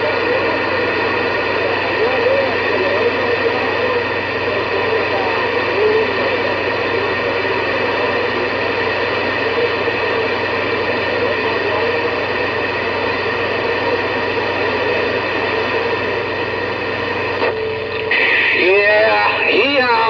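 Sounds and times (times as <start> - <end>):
radio static: 0.0 - 20.0
low hum: 6.9 - 20.0.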